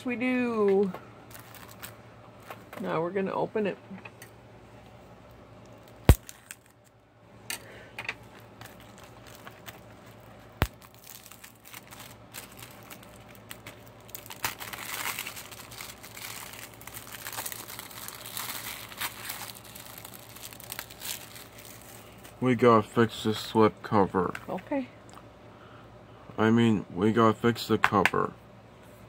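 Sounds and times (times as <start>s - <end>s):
plastic wrapping crinkling: 1.3s - 2.7s, 5.6s - 7.0s, 8.2s - 22.4s.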